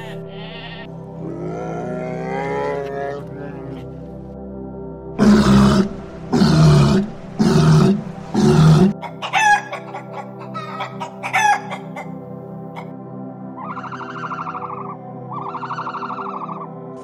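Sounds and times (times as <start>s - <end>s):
walrus calling: 0.0s - 4.0s, 5.2s - 12.9s, 13.6s - 17.0s
chickens clucking: 9.0s - 12.2s.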